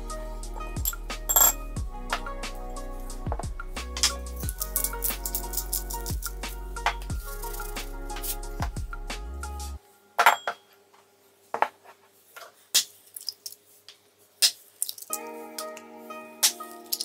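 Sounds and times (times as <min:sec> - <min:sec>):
background music: 0:00.0 - 0:10.3, 0:15.1 - 0:17.0.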